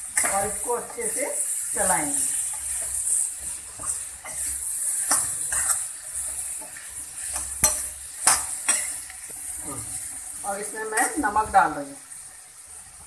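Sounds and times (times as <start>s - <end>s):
mango pieces sizzling in a pan: 0.0s - 13.0s
metal spoon scraping a pan: 0.1s - 11.3s
spoon clinking against a pan: 6.7s - 9.0s.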